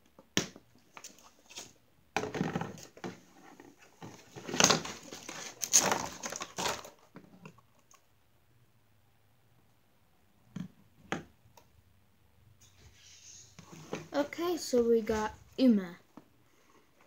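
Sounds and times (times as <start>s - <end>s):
plastic packaging crinkling: 4.3s - 7.1s.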